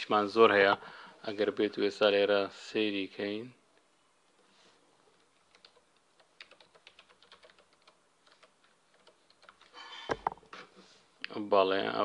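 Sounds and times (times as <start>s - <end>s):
faint keyboard typing: 3.8s - 10.6s.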